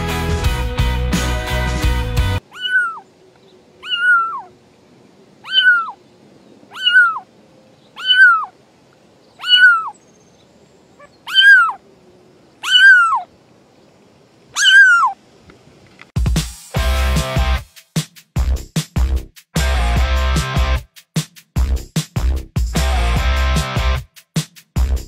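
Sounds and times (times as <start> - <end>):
kitten meowing: 2.5 - 3.0, 3.8 - 4.5, 5.4 - 6.0, 6.7 - 7.3, 8.0 - 8.5, 9.4 - 9.9, 11.2 - 11.8, 12.6 - 13.3, 14.6 - 15.2.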